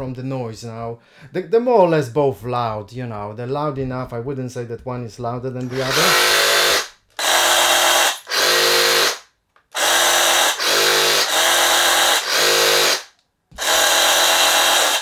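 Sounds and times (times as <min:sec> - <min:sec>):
reciprocating saws running: 0:05.6 - 0:09.2, 0:09.8 - 0:15.0.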